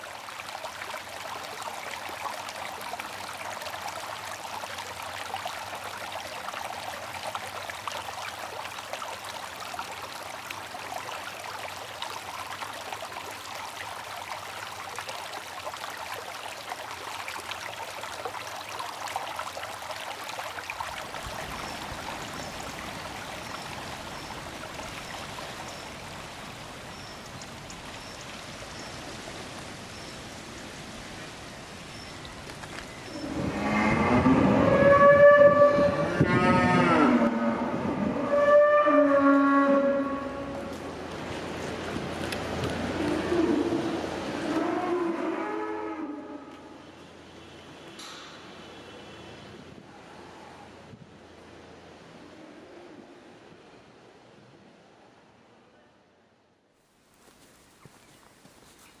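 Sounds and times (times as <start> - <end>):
stream trickling over stones: 0.0 - 37.6, 38.3 - 45.0, 56.8 - 59.0.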